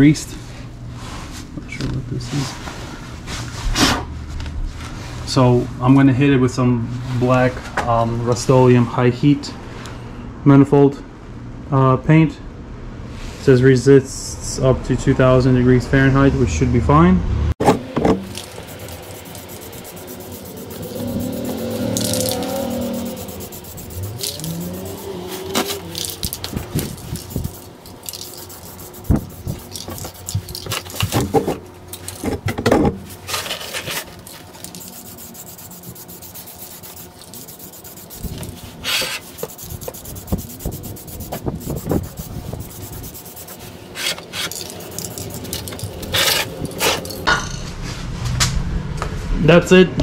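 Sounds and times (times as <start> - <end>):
spray-paint can hissing: 18.2 - 31.0, 34.6 - 43.6, 44.4 - 47.2.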